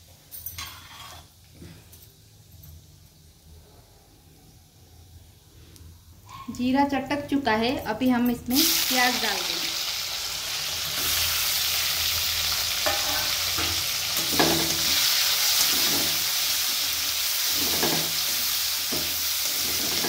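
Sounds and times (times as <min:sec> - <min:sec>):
spatula scraping a pan: 0:00.6 - 0:01.4, 0:15.5 - 0:16.4, 0:17.4 - 0:20.0
onions sizzling in hot oil: 0:08.4 - 0:20.0.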